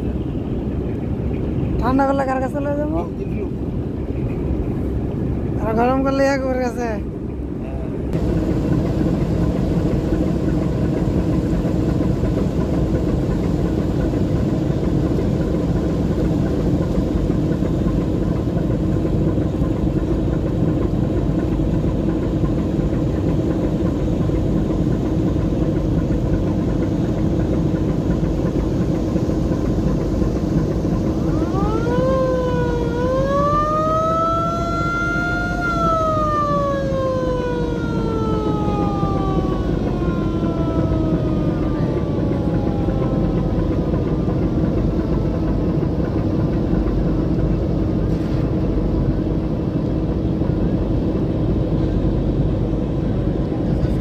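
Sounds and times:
boat engine running: 0.0s - 54.0s
siren-like wail: 30.6s - 46.2s.

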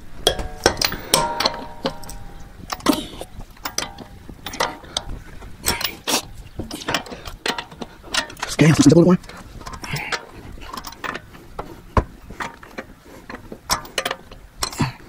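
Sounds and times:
metal socket clinking: 0.2s - 5.1s, 13.7s - 14.8s.

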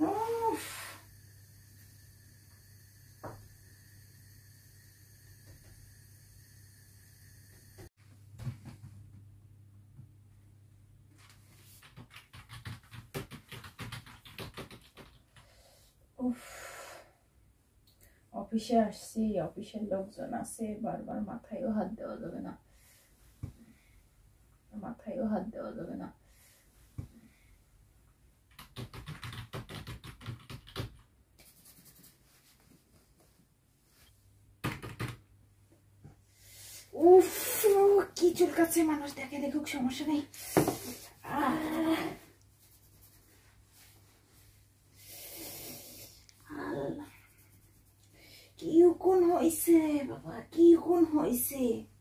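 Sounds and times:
computer keyboard typing: 11.8s - 15.2s, 28.5s - 31.0s, 34.6s - 35.2s
fingers scratching in hair: 28.6s - 32.7s, 40.6s - 43.5s, 45.4s - 48.2s.

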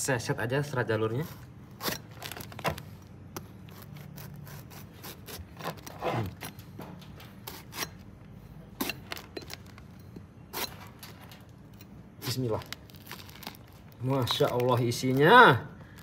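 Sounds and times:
knife scraping and cutting husk: 1.1s - 2.6s, 3.3s - 8.1s, 8.7s - 9.8s, 10.4s - 13.4s.

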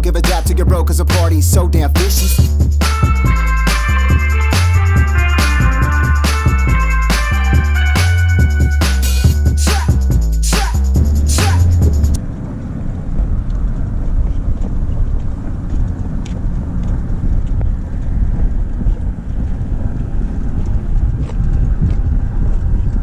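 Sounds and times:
wind buffeting microphone: 11.0s - 23.0s.

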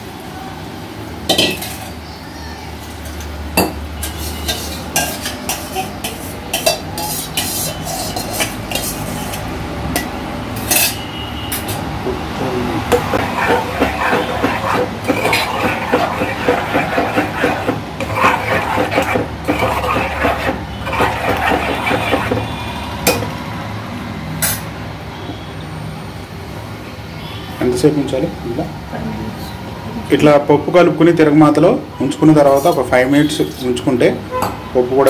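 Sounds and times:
spoon scraping metal pot: 4.0s - 11.8s, 12.8s - 23.2s.

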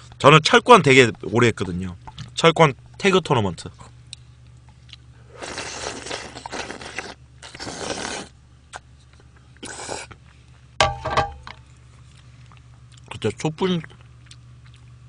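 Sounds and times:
person slurping noodles: 5.3s - 8.4s, 9.6s - 10.2s.

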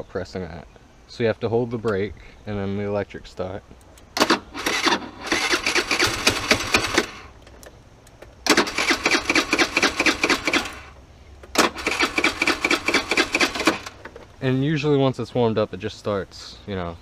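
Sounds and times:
scooter starter cranking engine: 4.2s - 7.5s, 8.4s - 14.2s.

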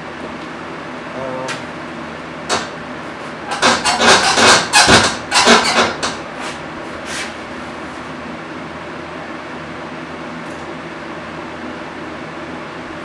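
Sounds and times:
scraping and knocking handling noises: 3.5s - 7.3s.

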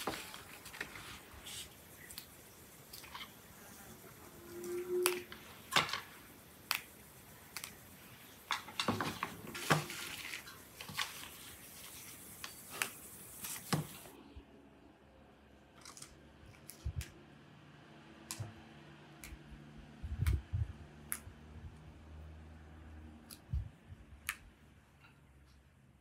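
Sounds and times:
green bean pods snapping: 6.7s - 6.9s, 7.5s - 7.8s.

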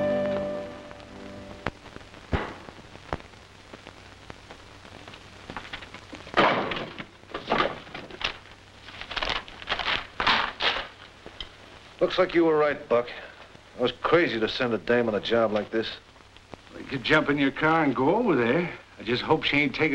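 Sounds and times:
film soundtrack hiss: 0.0s - 19.9s
wood rustling and scraping: 5.5s - 11.0s.

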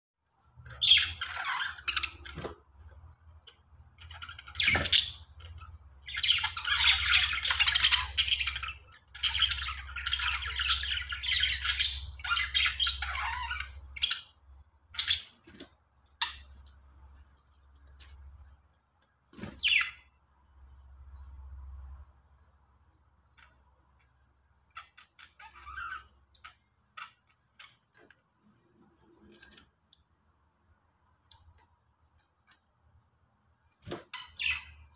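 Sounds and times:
budgerigars chirping and warbling: 0.6s - 2.6s, 3.4s - 16.6s, 19.4s - 20.1s, 24.6s - 28.2s, 33.9s - 34.9s.

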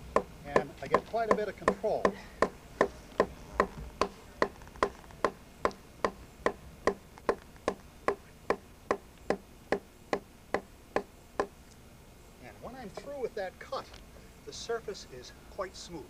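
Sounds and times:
wooden club hammering stone gouge: 0.1s - 9.8s.

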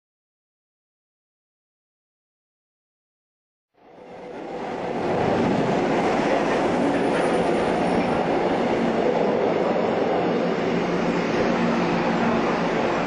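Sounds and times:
subway train running on rails: 3.8s - 13.0s.

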